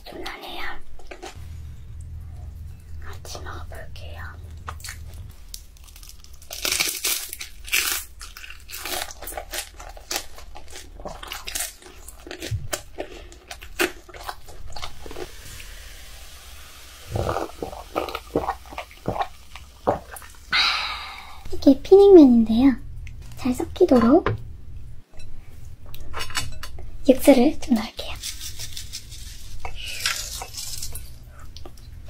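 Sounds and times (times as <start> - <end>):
crunching and chewing food: 4.2 - 15.3, 17.1 - 20.4, 28.2 - 32.0.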